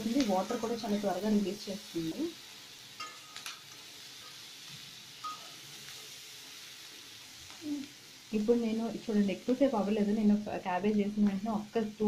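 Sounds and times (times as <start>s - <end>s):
metal spatula stirring vegetables: 0.0s - 7.4s
faint frying sizzle: 0.0s - 12.0s
spatula clinking on pan: 3.0s - 4.4s, 5.2s - 5.6s.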